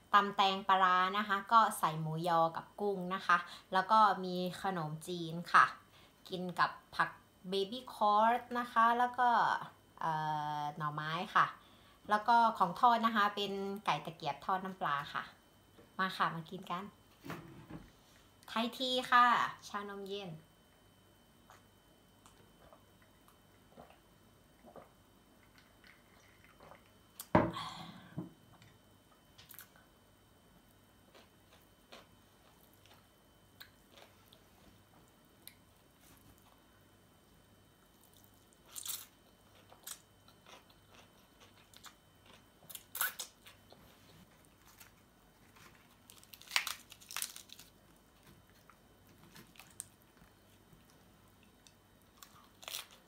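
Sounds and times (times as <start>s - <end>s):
crunching and chewing crisp food: 31.1s - 34.5s, 37.8s - 53.0s.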